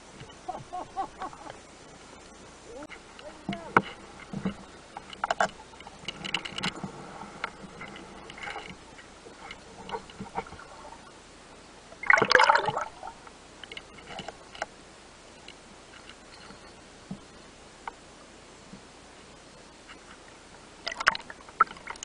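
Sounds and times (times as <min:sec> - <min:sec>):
underwater gurgling and bubbling: 0:12.0 - 0:13.2.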